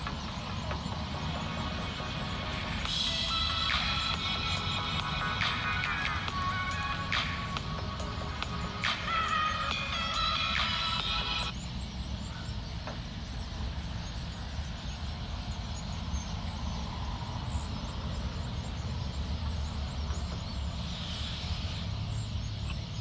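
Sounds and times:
passing cars and trucks rumbling: 0.0s - 23.0s
tyre hiss: 20.8s - 22.1s.

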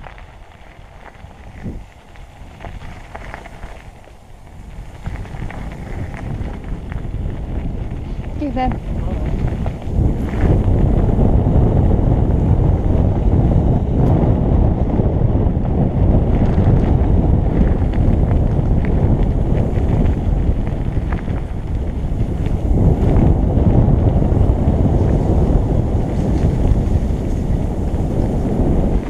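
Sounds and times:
clicks of grit and stones: 0.0s - 10.8s
tyres rumbling on gravel: 0.0s - 29.0s
wind buffeting microphone: 0.0s - 29.0s.

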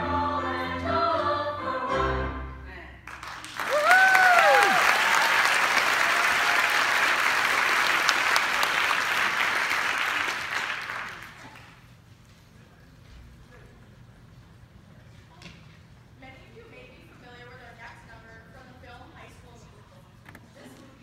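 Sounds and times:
singers with piano: 0.0s - 2.7s
audience applause: 3.1s - 11.8s
whooping cheers: 3.6s - 7.1s.

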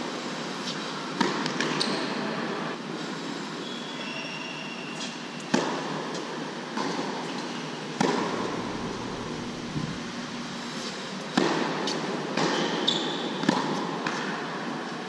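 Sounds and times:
shoe squeak: 1.8s - 2.2s, 3.6s - 5.5s, 12.5s - 13.3s
ventilation fans rushing: 7.6s - 11.4s
tennis racket hitting ball: 8.0s - 9.3s
tennis ball bouncing: 8.0s - 10.0s.

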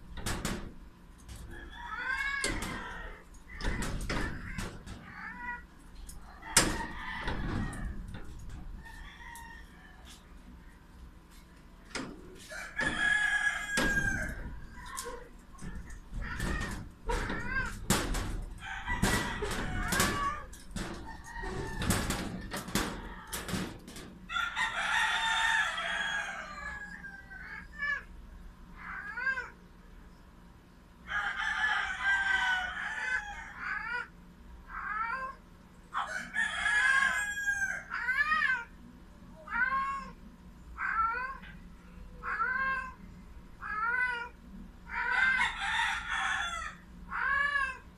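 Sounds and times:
sharp knocks and rattles: 0.0s - 9.2s, 11.9s - 25.3s
rooster crowing: 1.5s - 3.7s, 6.3s - 8.2s, 8.8s - 10.3s, 12.4s - 15.3s, 18.6s - 23.4s, 24.3s - 27.8s, 31.0s - 34.1s, 36.0s - 38.3s, 44.9s - 47.8s.

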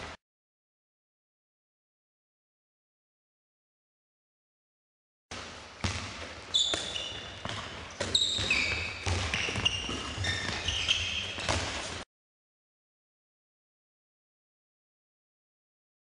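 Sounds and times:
ball bouncing on hall floor: 5.3s - 12.0s
sneakers squeaking on floor: 5.3s - 12.0s.

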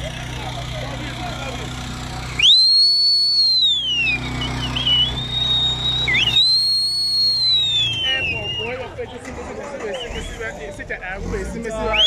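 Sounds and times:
high sliding whistle: 2.4s - 8.8s.

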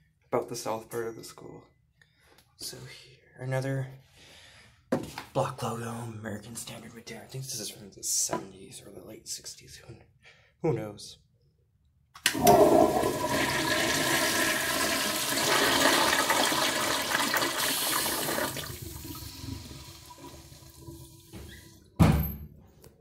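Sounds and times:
toilet flushing: 12.2s - 21.9s.

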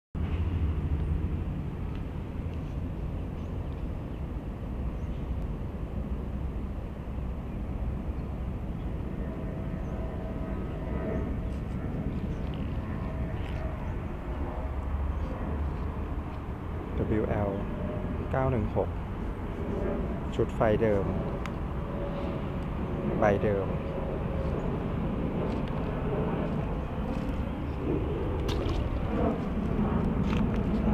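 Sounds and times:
low outdoor rumble: 0.2s - 30.9s.

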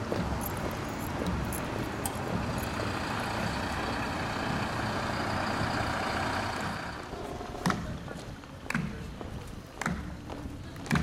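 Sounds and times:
hard shoes on asphalt: 0.0s - 4.7s
fire engine diesel engine: 0.0s - 8.5s.

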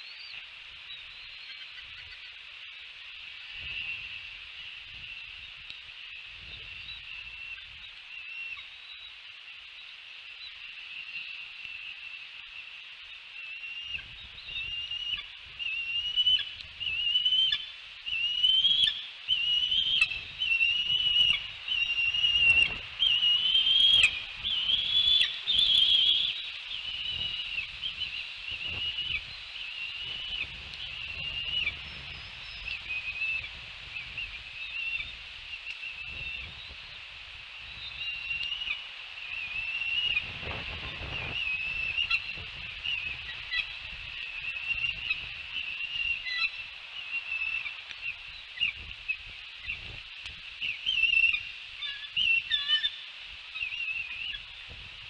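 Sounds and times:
eagles chirping whistles: 13.4s - 36.8s, 37.6s - 49.9s, 50.6s - 54.7s.

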